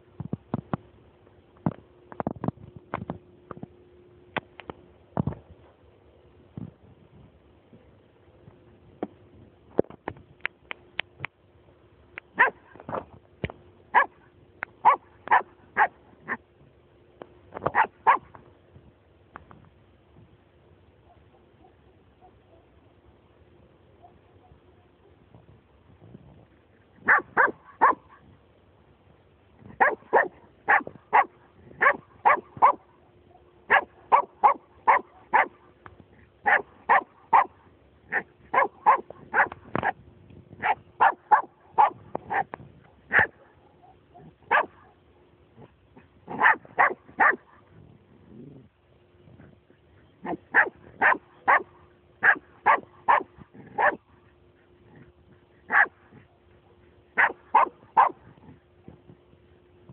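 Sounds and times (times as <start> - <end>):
dog barking sharply: 12.4 - 12.6, 13.9 - 14.2, 27.1 - 28.0, 29.8 - 32.8, 33.7 - 35.5, 38.1 - 39.5, 40.6 - 42.5, 43.1 - 44.8, 46.3 - 47.4, 50.2 - 54.0, 57.2 - 58.2.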